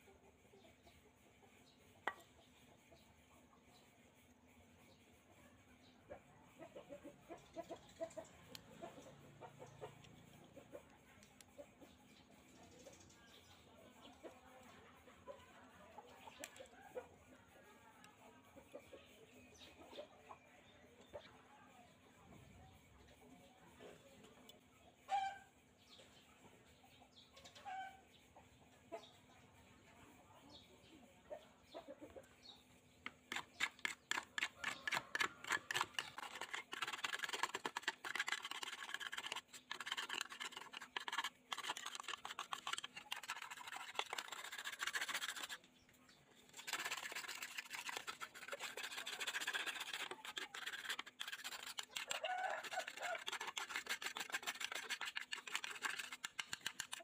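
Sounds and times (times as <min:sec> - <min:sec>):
stiff brush scrubbing plastic: 0:33.0 - 0:57.0.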